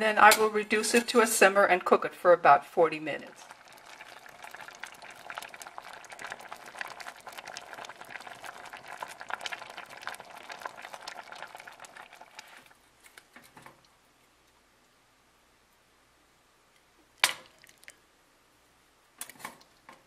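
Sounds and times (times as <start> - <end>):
soup bubbling in a pot: 3.2 - 14.2, 17.2 - 18.0, 19.2 - 20.0.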